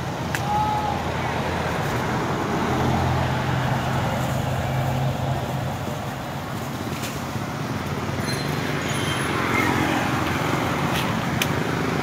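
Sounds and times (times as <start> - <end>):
traffic rushing noise: 0.0 - 12.0
vehicle engine hum: 0.0 - 12.0.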